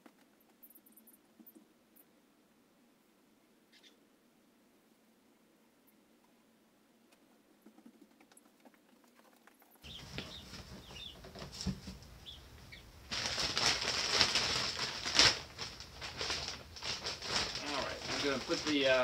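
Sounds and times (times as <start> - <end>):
baby chicks peeping: 9.7 - 13.7
plastic bag rustling: 9.8 - 19.0.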